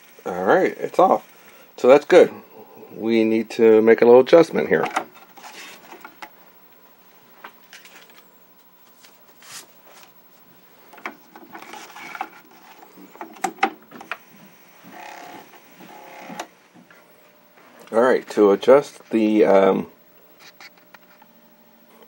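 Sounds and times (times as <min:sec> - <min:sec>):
floppy drive buzzing rattle: 0:10.5 - 0:22.0.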